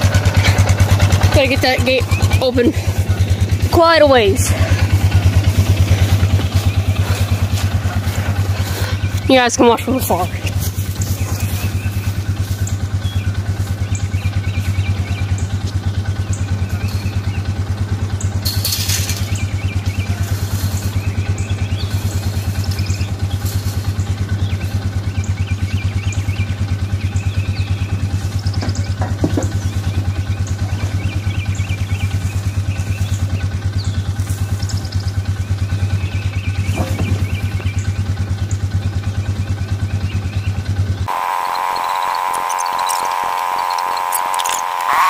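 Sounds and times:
vehicle engine idling: 0.0s - 45.0s.

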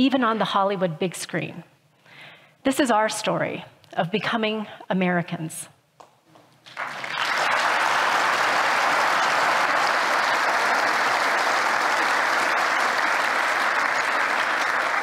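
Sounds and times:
audience applauding: 6.6s - 15.0s.

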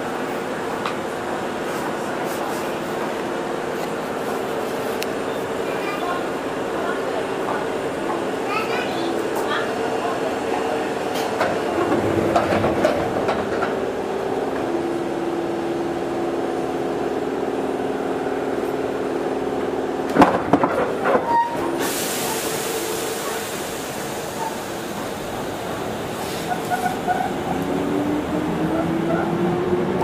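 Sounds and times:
train clanks: 5.0s - 9.8s, 10.9s - 14.9s, 20.0s - 27.8s.

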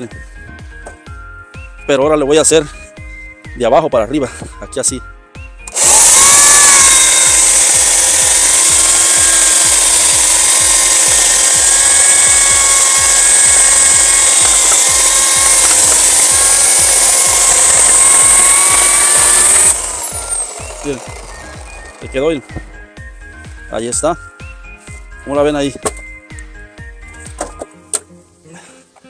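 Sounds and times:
electric chainsaw cutting log: 5.7s - 22.8s.

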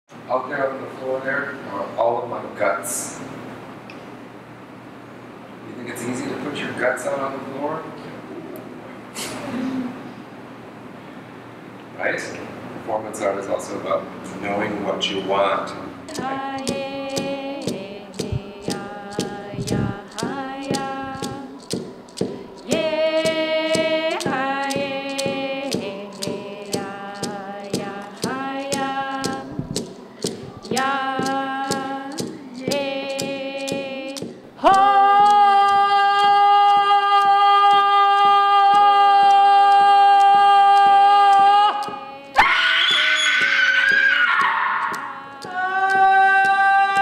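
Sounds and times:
voices singing held notes: 15.1s - 47.0s
sharp even beat: 16.1s - 42.5s, 43.4s - 47.0s.

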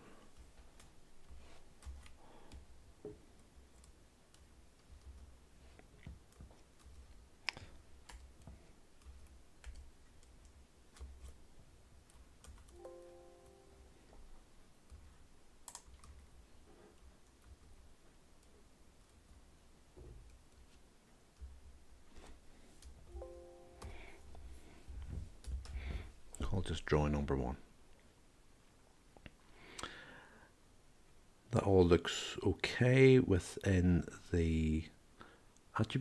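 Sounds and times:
computer mouse and keyboard clicks: 3.4s - 11.4s, 15.6s - 16.2s.

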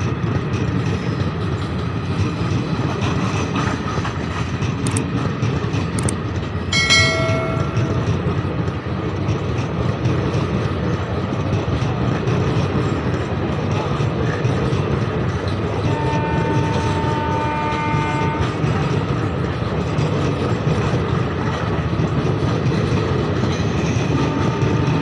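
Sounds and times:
train wheels rumbling on rails: 0.0s - 25.0s
sharp clicks: 4.8s - 5.1s, 5.9s - 6.2s
short chime-like tone: 6.8s - 8.1s.

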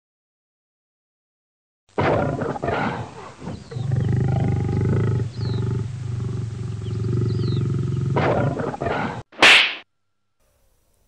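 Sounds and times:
cat growling: 2.0s - 9.2s.

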